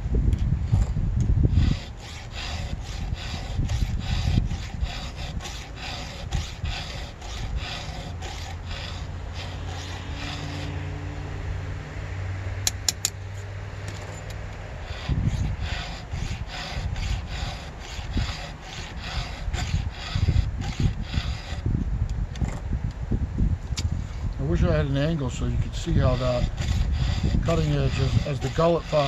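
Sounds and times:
file rasping on chainsaw chain: 1.5s - 10.8s, 14.2s - 21.7s, 24.0s - 29.0s
sharp clicks: 12.6s - 13.2s.

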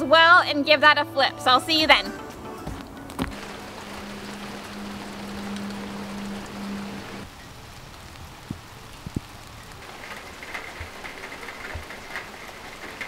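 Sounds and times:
steady rain: 2.7s - 13.0s
drops spattering into puddles: 7.8s - 13.0s.

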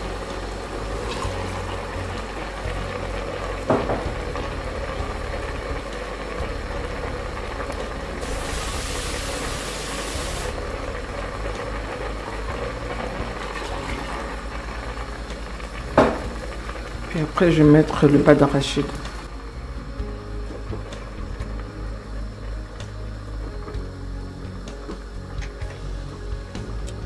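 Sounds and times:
water being poured: 0.0s - 17.5s
bright hiss: 0.0s - 27.0s
stew boiling in pot: 0.0s - 27.0s.

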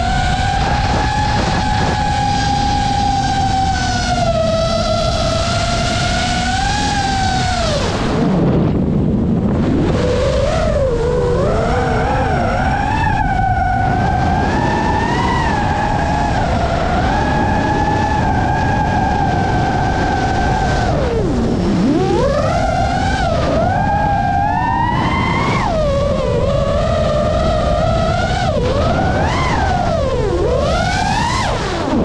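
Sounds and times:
quadcopter motors whining: 0.0s - 32.0s.

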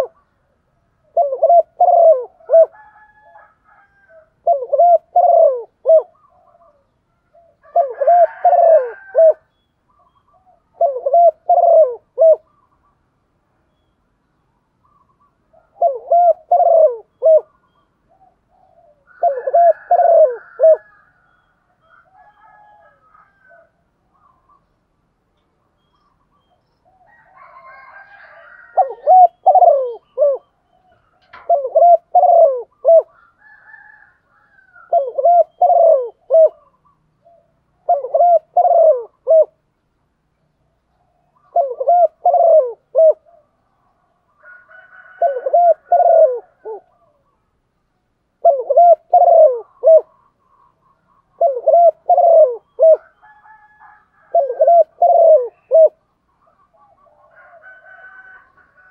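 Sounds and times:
dove cooing: 0.0s - 12.8s, 14.8s - 24.7s, 25.8s - 39.6s, 40.9s - 47.5s, 48.4s - 58.9s.

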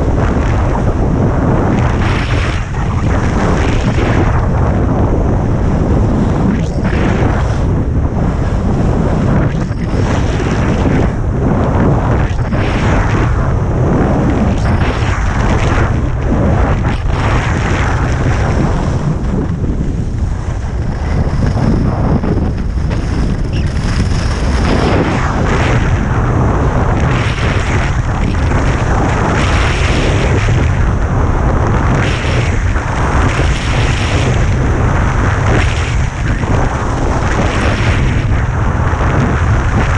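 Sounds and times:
skis scraping over snow: 0.0s - 30.7s
wind buffeting microphone: 0.0s - 39.9s.

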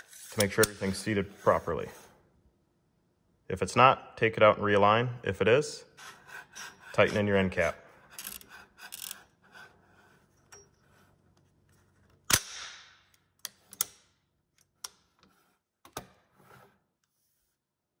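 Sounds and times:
metal scraping: 6.0s - 11.1s.

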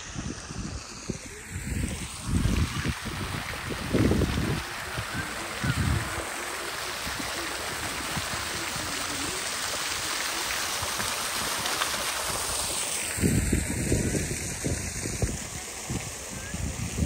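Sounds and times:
steady rushing noise: 0.0s - 8.3s.

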